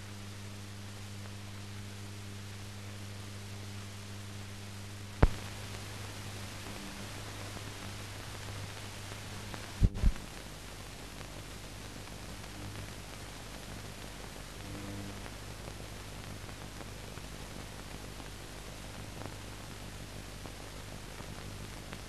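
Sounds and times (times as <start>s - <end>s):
film audio hiss: 0.0s - 22.0s
low mains hum: 0.0s - 22.0s.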